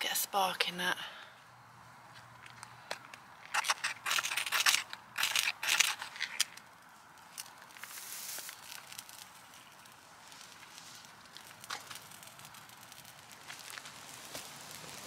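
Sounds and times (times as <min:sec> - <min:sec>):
rustling hiss of tinder: 0:06.9 - 0:15.0.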